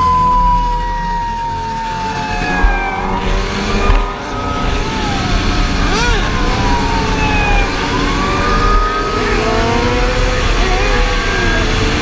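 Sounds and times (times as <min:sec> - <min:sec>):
motorcycle engines revving: 0:00.0 - 0:12.0
steady rush of noise: 0:01.9 - 0:09.2.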